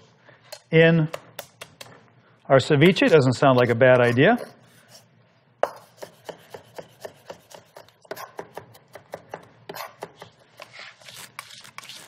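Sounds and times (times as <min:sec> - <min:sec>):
knife chopping on wooden board: 0:05.6 - 0:10.4.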